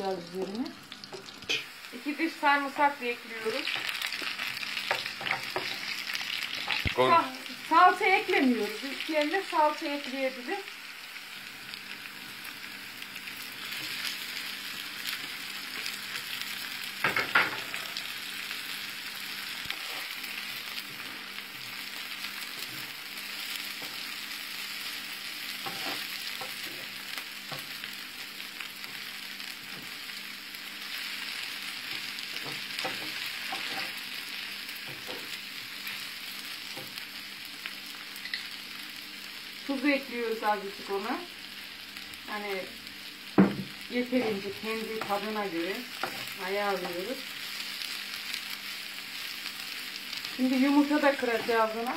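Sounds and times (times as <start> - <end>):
onions sizzling in a frying pan: 0.0 - 51.9
wooden spoon scraping a pan: 25.6 - 26.9.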